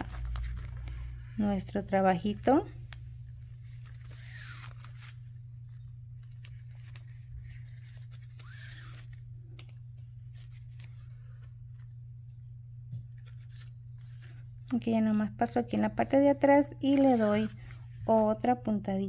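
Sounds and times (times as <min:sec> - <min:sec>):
steady low hum: 0:00.0 - 0:19.0
ribbon rustling and clicking: 0:02.8 - 0:12.0.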